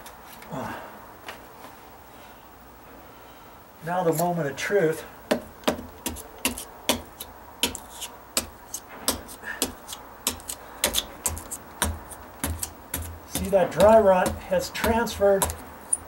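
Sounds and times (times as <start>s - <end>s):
hammer tapping a chisel: 5.3s - 16.0s.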